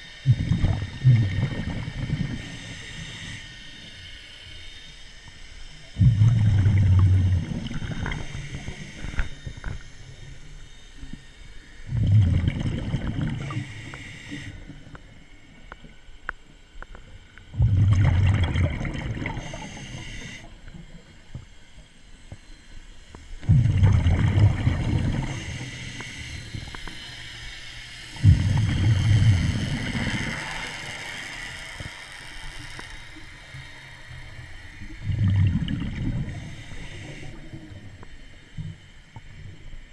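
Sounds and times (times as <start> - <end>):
regulator hiss: 0.0 - 5.9, 7.4 - 11.9, 13.3 - 15.8, 19.2 - 20.8, 24.8 - 35.1, 35.9 - 39.2
underwater bubbles rumbling: 0.3 - 2.5, 5.9 - 9.7, 11.9 - 13.7, 17.5 - 19.6, 23.4 - 25.6, 28.2 - 30.6, 34.8 - 37.8.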